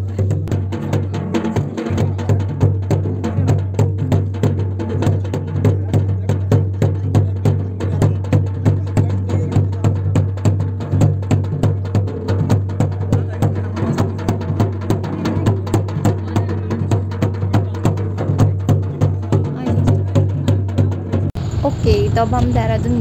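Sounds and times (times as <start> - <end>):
fast drum beat: 0.0 - 23.0.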